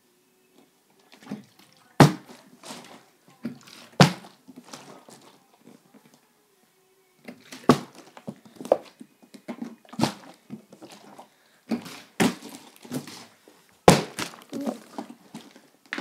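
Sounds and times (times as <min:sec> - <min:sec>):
plastic bottle knocks and thuds: 0:02.0 - 0:02.4, 0:03.9 - 0:04.8, 0:07.5 - 0:08.8, 0:11.7 - 0:13.2.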